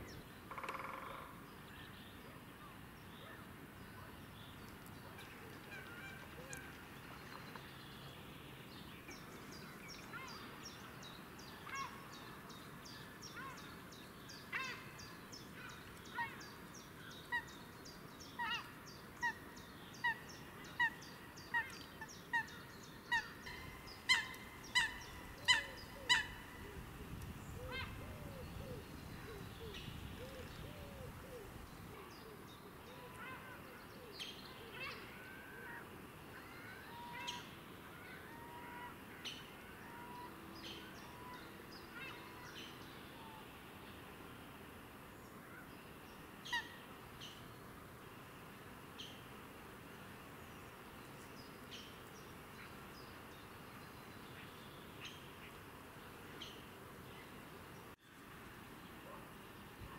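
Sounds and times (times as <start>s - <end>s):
small birds chirping: 3.1s - 35.1s.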